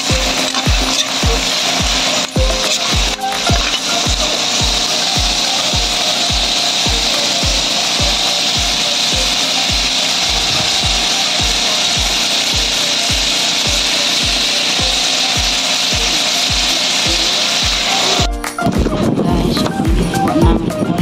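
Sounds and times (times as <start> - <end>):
chicken sizzling in oil: 0.0 - 18.3
music with thumping beat: 0.0 - 21.0.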